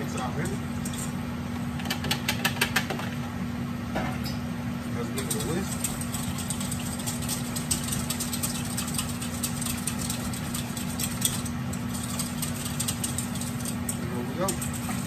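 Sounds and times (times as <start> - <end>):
steady low hum: 0.0 - 15.0
whisk clicking in metal bowl: 5.1 - 15.0.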